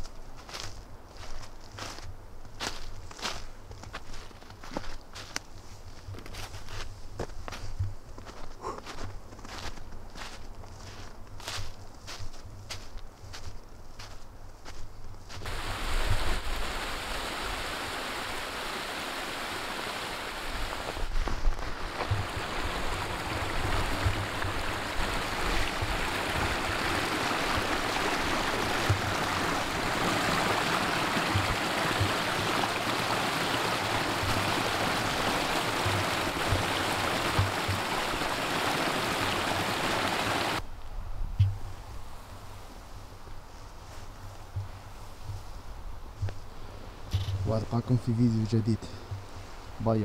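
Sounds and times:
stream running over stones: 15.4 - 40.6.

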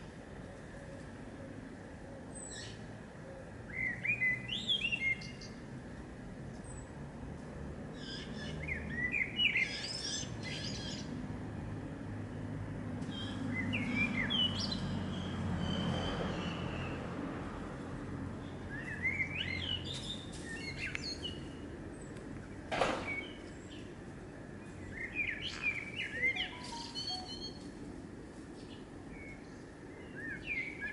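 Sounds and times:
songbird chirping: 2.2 - 5.7, 8.0 - 17.1, 18.4 - 27.9, 28.5 - 30.9.

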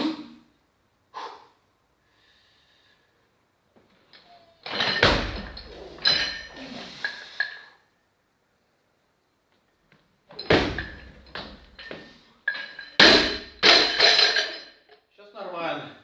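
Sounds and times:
sharp breath: 1.1 - 3.2
barbell thud: 4.6 - 6.6, 10.3 - 14.7.

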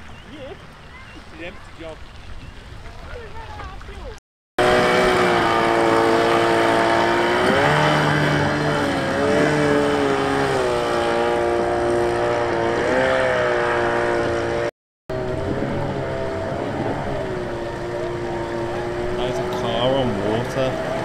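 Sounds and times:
engine running with throttle blips: 4.6 - 21.0.

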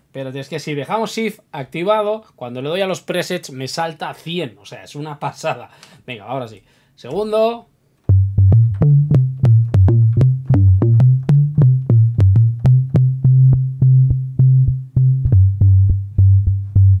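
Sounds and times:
synthesizer bass notes pulsing: 8.1 - 17.0.

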